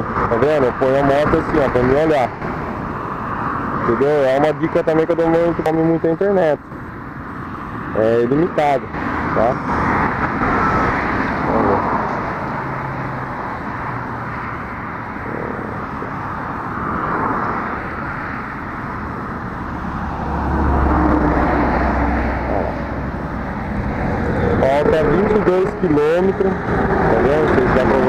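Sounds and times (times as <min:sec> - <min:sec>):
highway traffic passing: 0:00.0 - 0:28.0
deep engine drone: 0:06.6 - 0:28.0.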